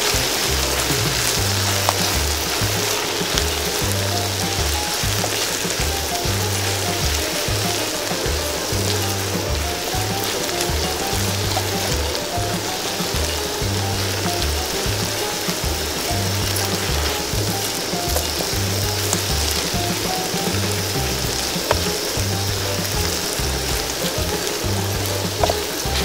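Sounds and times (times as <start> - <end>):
background music with bass line: 0.0 - 26.0
meat deep-frying in oil: 0.0 - 26.0.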